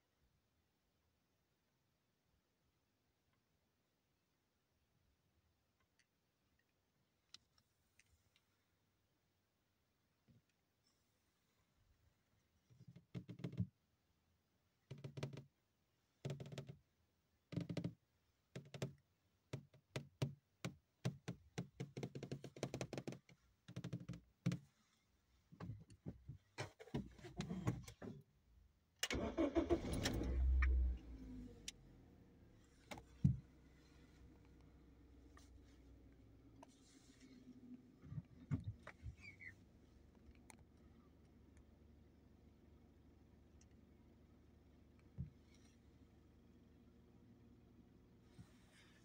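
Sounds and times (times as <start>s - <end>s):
car engine cranking and starting: 29.0s - 35.4s.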